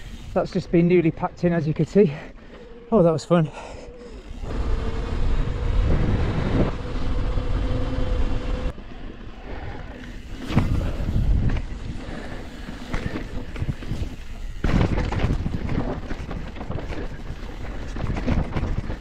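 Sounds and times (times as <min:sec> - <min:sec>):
steady hum: 0:03.8 - 0:08.8
wind buffeting microphone: 0:04.5 - 0:08.7, 0:10.4 - 0:19.0.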